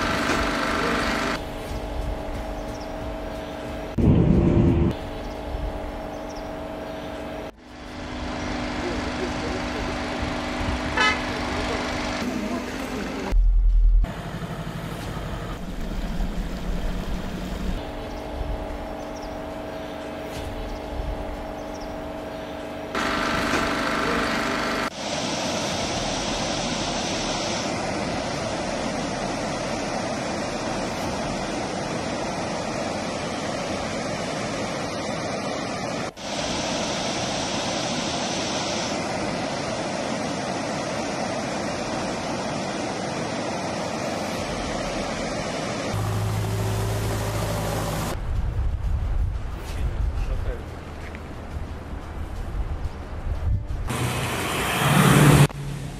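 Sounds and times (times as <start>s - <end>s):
diesel engine humming: 0.0s - 25.0s, 44.4s - 55.9s
steady rushing noise: 0.0s - 55.9s.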